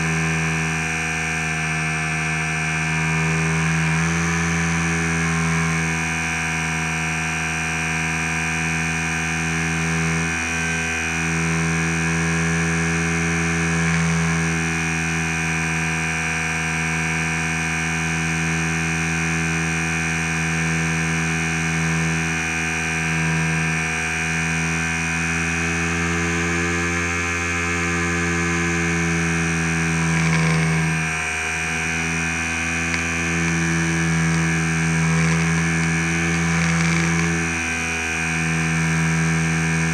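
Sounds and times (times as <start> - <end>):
model plane motor buzzing whine: 0.0 - 39.9.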